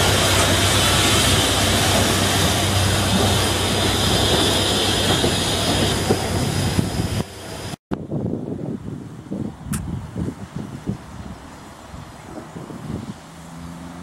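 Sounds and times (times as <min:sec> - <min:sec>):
steam hissing: 0:00.0 - 0:07.8
train wheels rumbling: 0:00.0 - 0:07.8.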